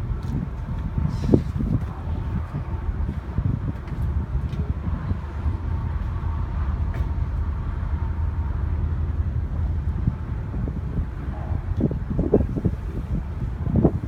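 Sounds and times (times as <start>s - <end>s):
ship engines rumbling: 0.0s - 14.0s
wind buffeting microphone: 0.0s - 14.0s.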